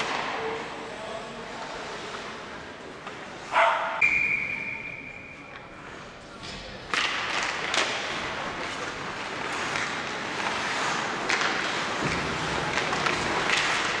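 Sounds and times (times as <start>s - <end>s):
hockey sticks and puck clacking: 0.0s - 0.8s, 1.7s - 14.0s
skates scraping on ice: 0.0s - 3.8s, 6.8s - 14.0s.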